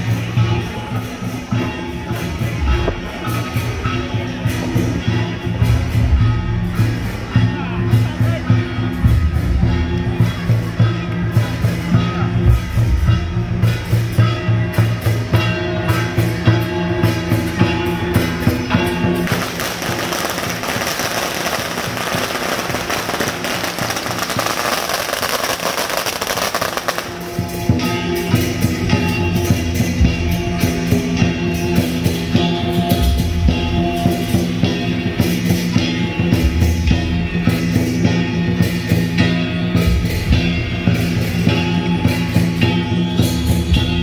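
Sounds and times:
firecrackers crackling: 0:09.9 - 0:29.9.

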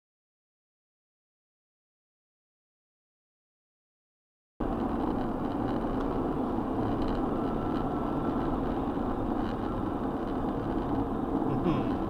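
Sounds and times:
car engine and tyre noise: 0:04.6 - 0:12.0.

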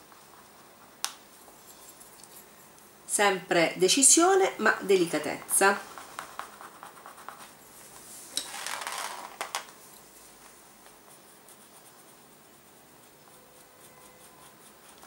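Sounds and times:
scratchy rubbing on foil: 0:11.2 - 0:15.0.

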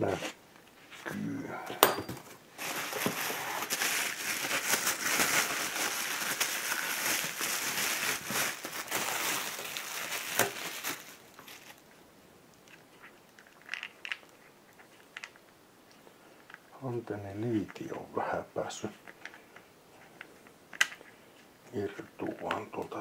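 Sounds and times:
bubble wrap crinkling: 0:02.5 - 0:12.0.

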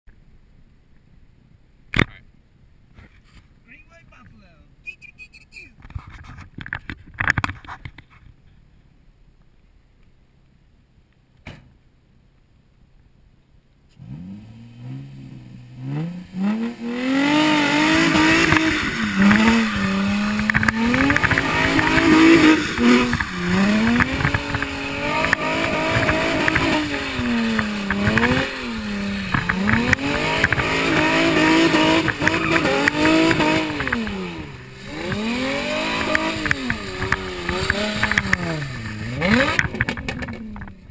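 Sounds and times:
spinning tyres hissing: 0:13.9 - 0:40.4
car engine revving: 0:13.9 - 0:40.9.

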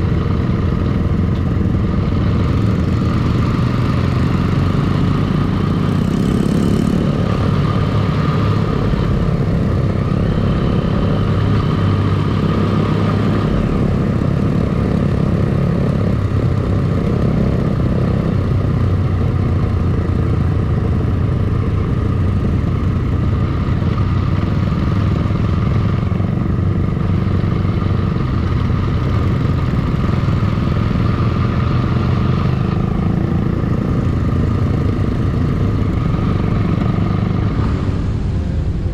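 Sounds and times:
motorcycle engines cruising: 0:00.0 - 0:38.9.

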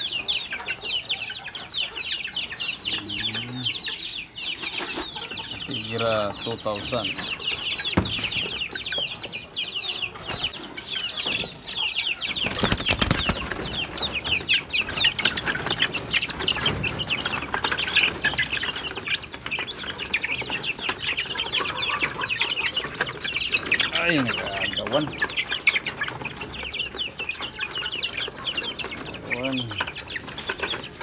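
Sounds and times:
chicks peeping: 0:00.0 - 0:31.0.

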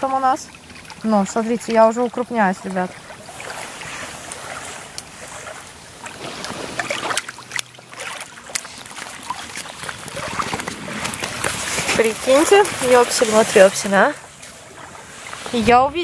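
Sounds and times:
fish splashing in water: 0:00.0 - 0:15.6
fish slapping on wet sand: 0:03.0 - 0:15.6.

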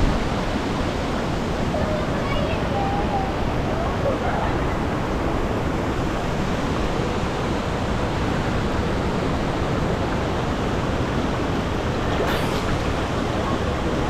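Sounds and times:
river water rushing around boulders: 0:00.0 - 0:14.0
waterfall roaring: 0:00.0 - 0:14.0
water splash: 0:12.0 - 0:14.0.

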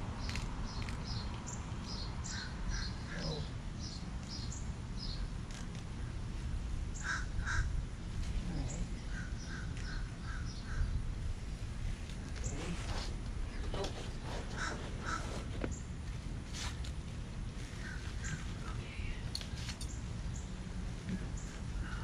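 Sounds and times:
birds calling: 0:00.2 - 0:06.2, 0:07.0 - 0:07.8, 0:08.5 - 0:11.2, 0:13.5 - 0:16.0, 0:17.6 - 0:19.2.

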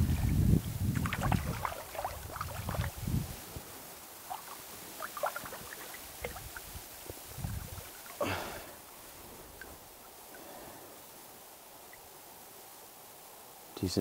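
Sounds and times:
water splashing and dripping: 0:00.0 - 0:10.4.

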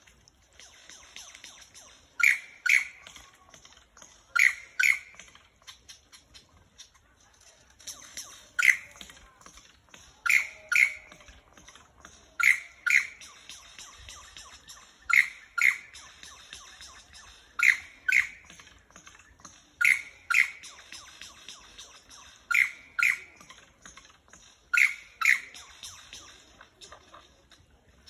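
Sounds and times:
lyrebird calling: 0:00.8 - 0:03.1, 0:04.3 - 0:06.9, 0:08.4 - 0:09.1, 0:10.2 - 0:11.3, 0:12.4 - 0:18.8, 0:19.8 - 0:23.6, 0:24.7 - 0:26.9.

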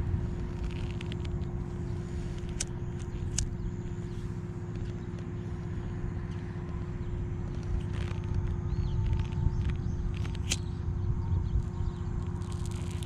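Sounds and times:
faint hum: 0:00.0 - 0:13.0
low rumbling noise: 0:00.0 - 0:13.0
sharp clicks: 0:00.4 - 0:01.7, 0:02.3 - 0:03.6, 0:06.2 - 0:10.8.

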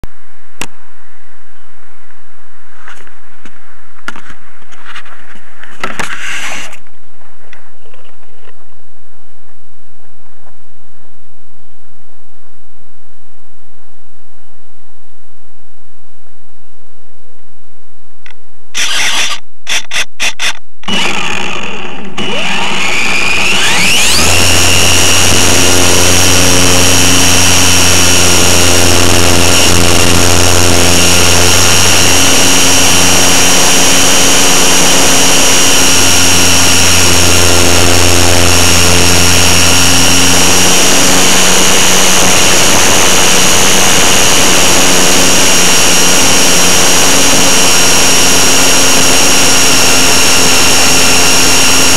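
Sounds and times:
sharp clicks: 0:18.2 - 0:24.4
electric motor whine: 0:18.8 - 0:51.9.

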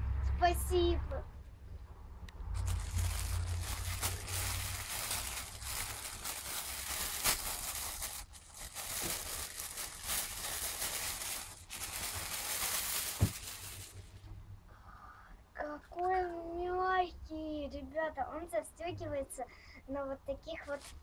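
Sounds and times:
plastic bag crinkling: 0:02.6 - 0:14.1, 0:20.6 - 0:21.0.

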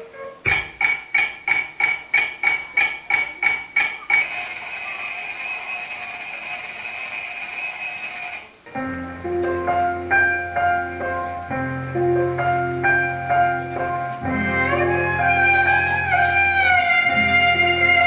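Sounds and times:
soft piano music: 0:00.0 - 0:04.6, 0:08.5 - 0:18.0
alarm clock beeping and ringing: 0:04.2 - 0:08.6.

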